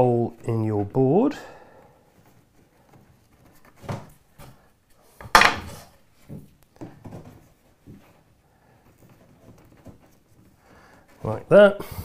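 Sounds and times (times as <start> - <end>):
wood knocking and rubbing: 5.2 - 8.3, 8.9 - 11.4.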